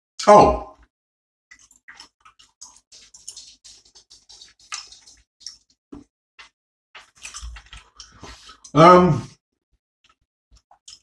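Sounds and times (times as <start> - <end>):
wet chewing: 1.6 - 5.7, 6.4 - 8.7.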